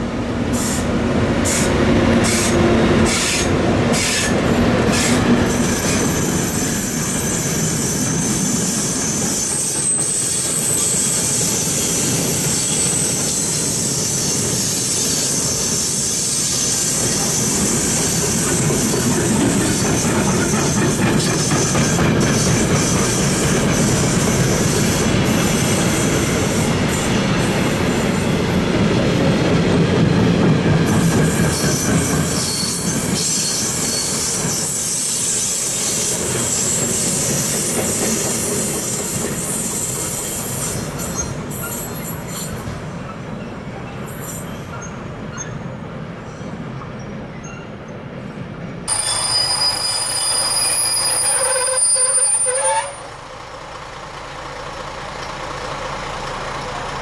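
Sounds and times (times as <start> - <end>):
train wheels rumbling on rail: 0.0 - 57.0
high-pitched wheel squeal: 1.5 - 18.2, 31.3 - 42.7, 48.9 - 53.2.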